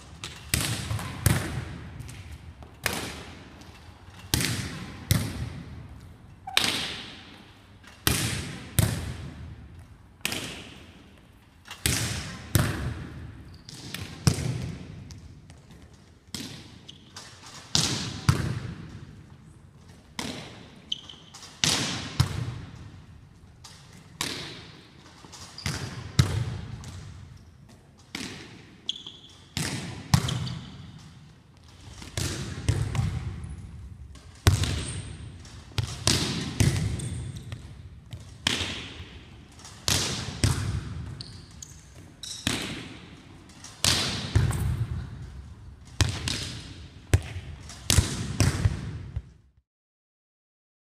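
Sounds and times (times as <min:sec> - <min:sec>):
volleyball hits echoing: 0:32.0 - 0:33.5, 0:34.2 - 0:41.2, 0:42.0 - 0:43.2, 0:43.8 - 0:45.3, 0:45.9 - 0:49.2.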